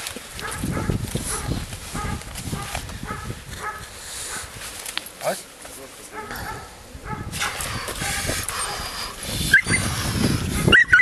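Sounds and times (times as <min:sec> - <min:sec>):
rustling and scuffling: 0:00.0 - 0:09.4
puppy whining: 0:07.8 - 0:10.0, 0:10.7 - 0:11.0
puppy yelping: 0:08.5 - 0:09.9, 0:10.7 - 0:11.0.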